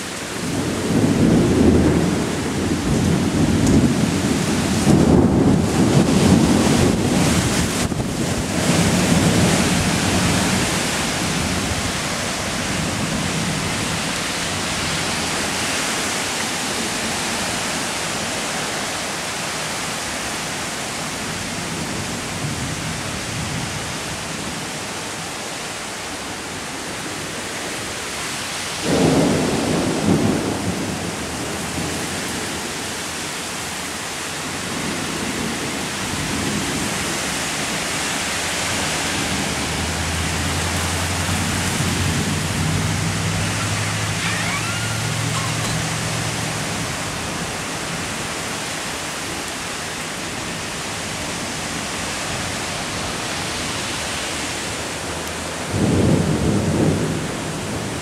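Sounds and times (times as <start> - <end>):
gusty wind: 0.0 - 58.0
heavy rain pouring: 0.0 - 58.0
low thunder rumbling: 0.2 - 15.6, 28.8 - 32.9, 38.5 - 48.3, 55.1 - 58.0.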